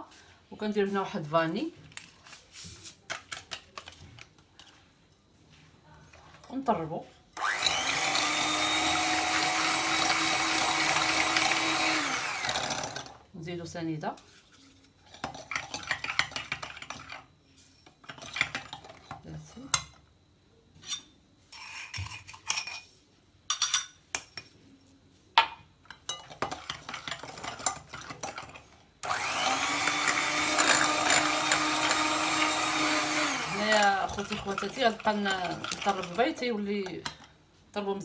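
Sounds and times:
electric hand mixer running: 0:07.4 - 0:13.2, 0:29.0 - 0:36.2.

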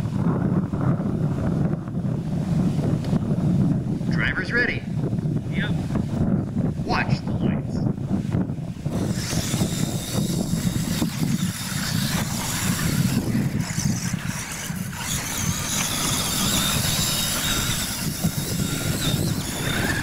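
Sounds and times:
wind on microphone: 0:00.0 - 0:20.0
rc truck motors whining: 0:08.9 - 0:20.0.

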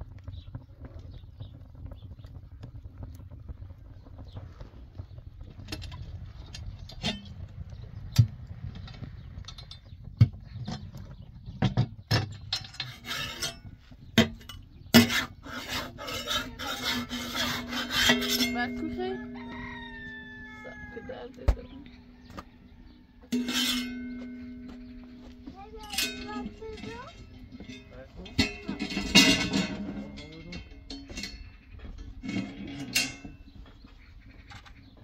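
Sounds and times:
knocks and clatters on stone hearth: 0:00.0 - 0:35.0
scraping on iron griddle: 0:05.6 - 0:07.4, 0:11.5 - 0:21.1, 0:21.8 - 0:35.0.

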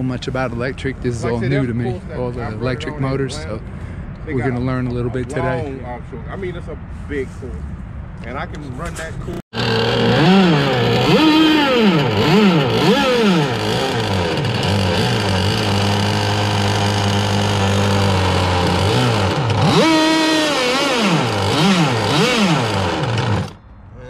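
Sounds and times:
small two-stroke engine revving: 0:09.5 - 0:23.6.

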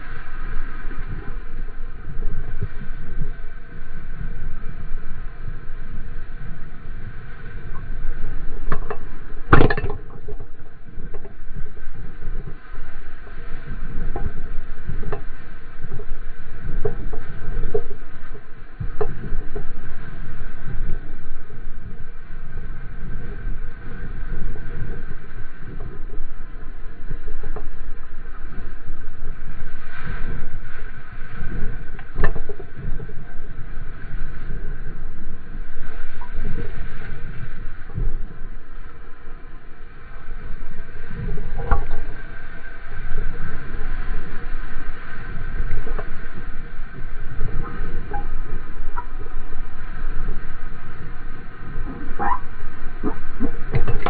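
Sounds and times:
water rushing: 0:00.0 - 0:54.0
wind rumbling on camera: 0:00.0 - 0:54.0.

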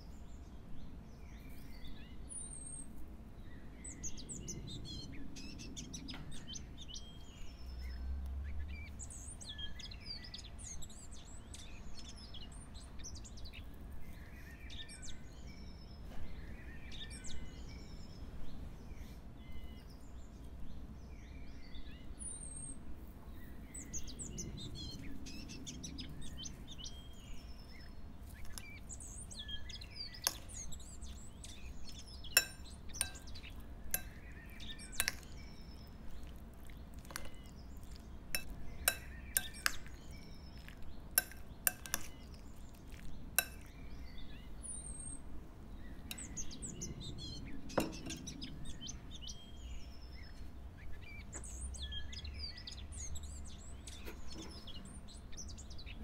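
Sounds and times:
small birds chirping: 0:00.0 - 0:56.0
metal spoon clinking glass bowl: 0:28.4 - 0:28.7, 0:30.2 - 0:30.8, 0:32.3 - 0:43.7, 0:46.1 - 0:46.5, 0:47.8 - 0:48.3.

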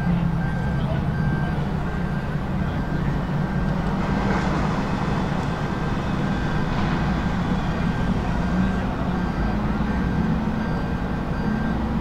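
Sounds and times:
heavy engine droning: 0:00.0 - 0:12.0.

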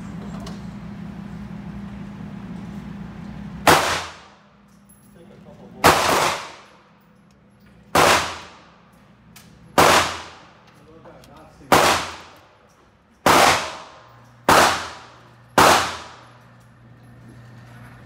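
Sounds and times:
gunshots echoing indoors: 0:03.6 - 0:04.6, 0:05.8 - 0:07.0, 0:07.9 - 0:08.9, 0:09.7 - 0:10.7, 0:11.7 - 0:16.4.

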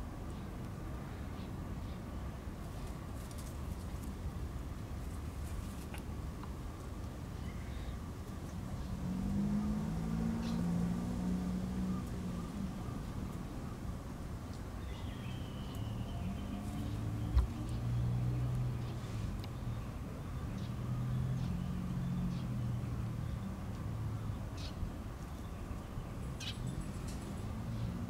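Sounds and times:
birds chirping: 0:07.4 - 0:13.8, 0:14.5 - 0:28.0.

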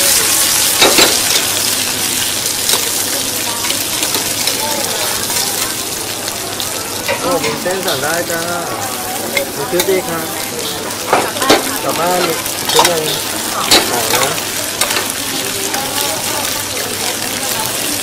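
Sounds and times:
prawns sizzling in pans: 0:00.0 - 0:18.0
metal clinks of tongs and pans: 0:00.8 - 0:01.5, 0:11.1 - 0:15.1.

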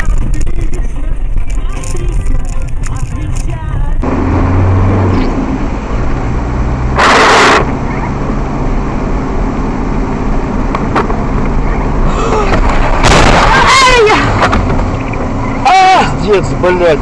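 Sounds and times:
car engine and road noise: 0:00.0 - 0:17.0
loud rush of noise: 0:04.0 - 0:16.2.

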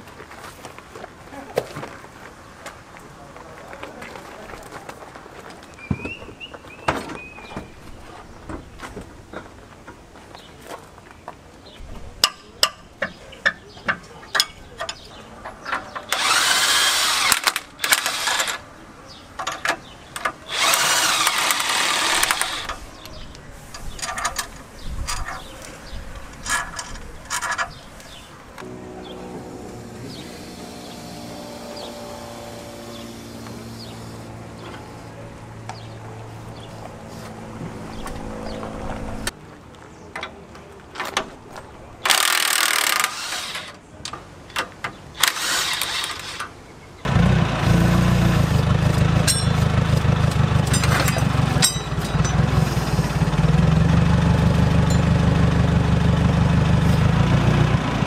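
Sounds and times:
forklift engine running: 0:16.1 - 0:18.6, 0:20.4 - 0:23.3, 0:28.6 - 0:39.3, 0:47.0 - 0:58.0
steady tones: 0:27.8 - 0:39.3, 0:50.6 - 0:53.6
shop tools hissing and clanking: 0:50.7 - 0:53.3.

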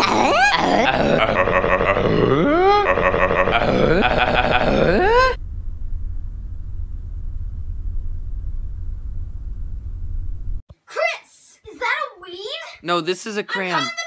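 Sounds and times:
groaning voice: 0:00.0 - 0:05.4
steady low hum: 0:00.6 - 0:10.6.

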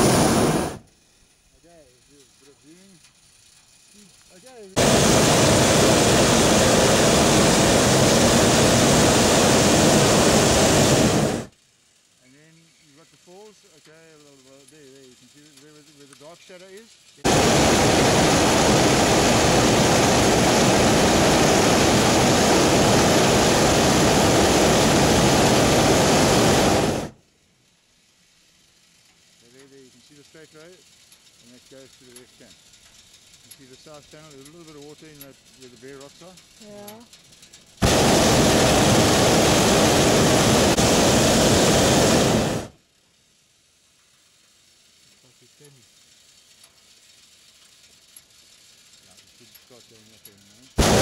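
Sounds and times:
propane burner blast: 0:00.0 - 0:11.6, 0:17.1 - 0:27.3, 0:37.6 - 0:42.9, 0:44.2 - 0:51.0.

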